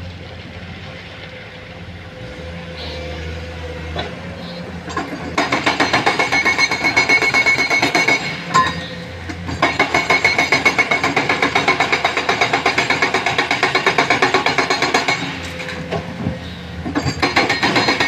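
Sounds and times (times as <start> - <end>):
diesel engines running: 0.0 - 18.0
hydraulic breaker hammering rock: 4.8 - 16.1, 16.8 - 18.0.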